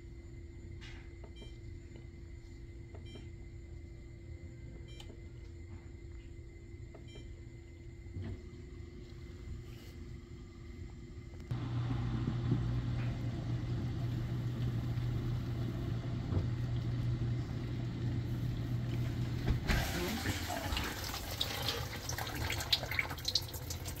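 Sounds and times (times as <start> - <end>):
dishwasher pump humming: 10.6 - 24.0
hiss from wet tub: 19.6 - 21.8.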